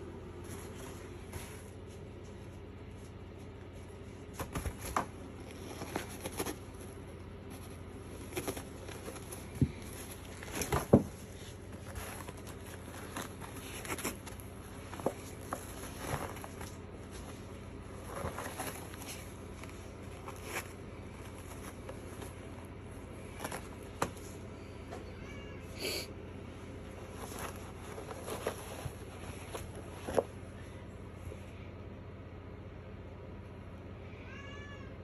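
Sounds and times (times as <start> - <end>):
paper rustling: 0.3 - 24.4, 26.7 - 30.4.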